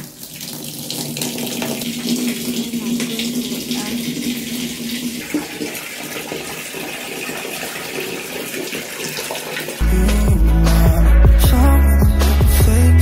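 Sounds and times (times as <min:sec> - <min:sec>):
tap water running into bucket: 0:00.0 - 0:09.8
background music: 0:09.8 - 0:13.0.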